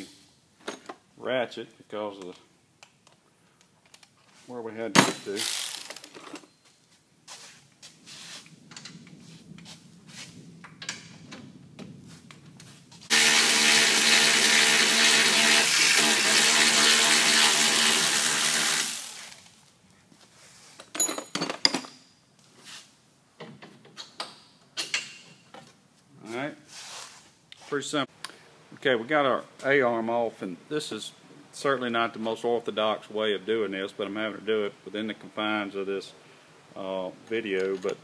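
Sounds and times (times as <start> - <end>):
power ratchet spinning: 5.4 - 6.0, 13.1 - 19.4
metallic clicks and clanks of tools: 23.4 - 25.7, 37.6 - 38.0.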